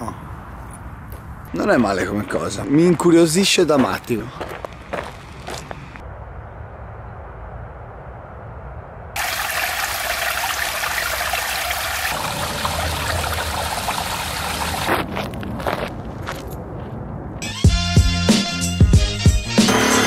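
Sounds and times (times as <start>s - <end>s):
footsteps on dirt path: 0.6s - 2.4s, 3.4s - 6.0s, 14.8s - 17.4s
water rushing down a channel: 9.2s - 14.9s.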